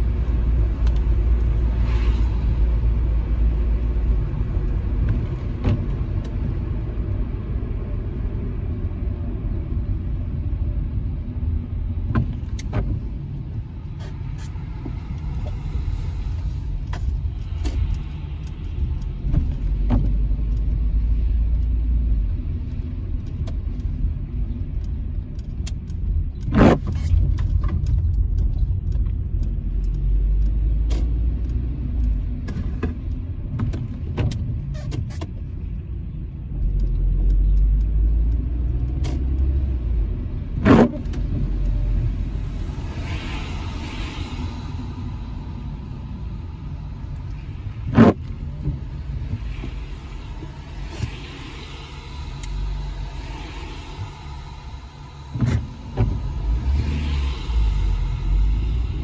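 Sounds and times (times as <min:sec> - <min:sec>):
car engine and tyres rumbling: 0:00.0 - 0:59.0
faint clicks: 0:16.3 - 0:39.8.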